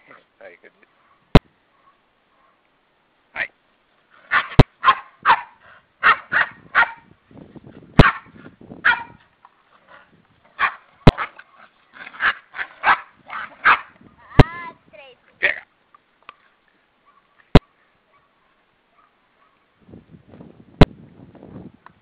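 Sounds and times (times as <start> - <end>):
puppies barking and yipping: 8.0 - 9.2, 10.5 - 14.0.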